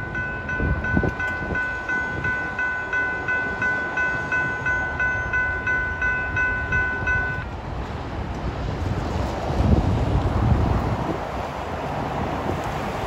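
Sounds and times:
railroad crossing bell ringing: 0.0 - 7.6.

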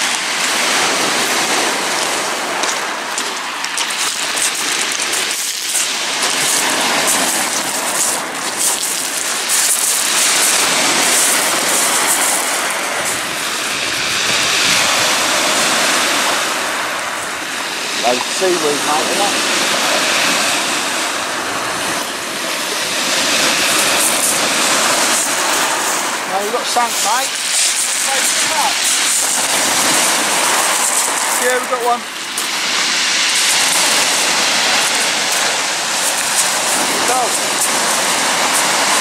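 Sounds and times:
surf washing over pebbles: 0.0 - 39.0.

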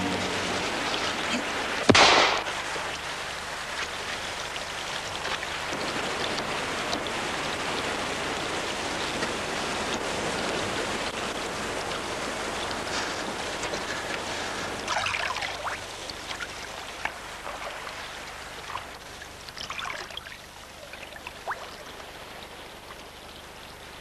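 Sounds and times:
water around rowing boat: 0.0 - 24.0
sharp crack: 1.8 - 3.1.

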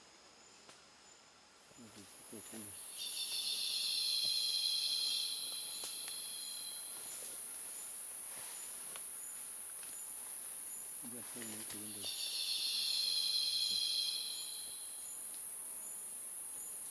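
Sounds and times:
high-pitched insect hiss: 0.0 - 16.9
lower insect chorus: 0.0 - 16.9.

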